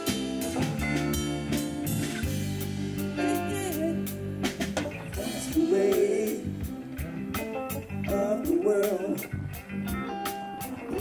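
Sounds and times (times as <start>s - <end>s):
live rock band playing: 0.0s - 11.0s
man singing: 3.2s - 4.2s, 5.1s - 9.5s.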